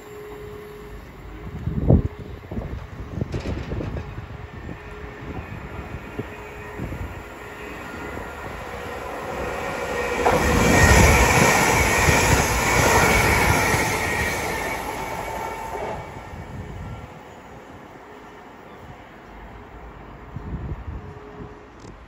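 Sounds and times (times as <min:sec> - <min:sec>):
electric train passing at speed: 0:00.0 - 0:22.0
steady high tone: 0:04.5 - 0:19.3.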